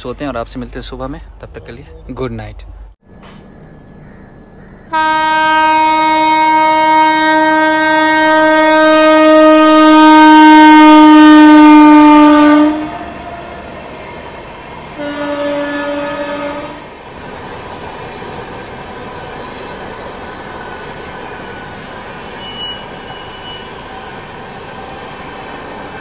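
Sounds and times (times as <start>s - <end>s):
train running noise: 0.0s - 26.0s
electric locomotive horn: 4.9s - 13.6s, 14.9s - 17.0s, 22.4s - 23.9s.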